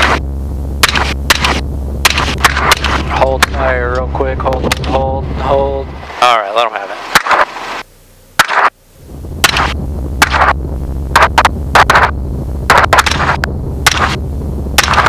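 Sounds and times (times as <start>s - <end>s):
helicopter drone: 0.0s - 15.0s
rifle shots: 0.8s - 3.1s, 7.1s - 7.6s, 8.4s - 8.8s, 9.4s - 12.1s, 12.7s - 14.2s, 14.8s - 15.0s.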